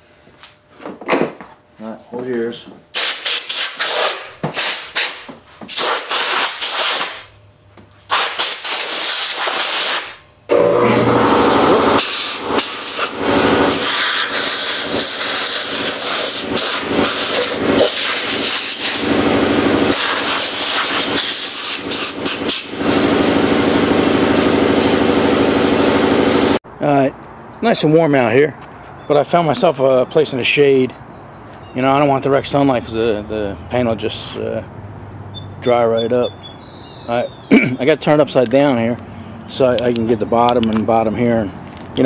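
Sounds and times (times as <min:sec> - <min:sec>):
air compressor humming: 0:02.5 - 0:07.4, 0:08.0 - 0:26.6
air blow gun blasts: 0:02.9 - 0:07.3, 0:08.1 - 0:10.2, 0:11.9 - 0:23.6.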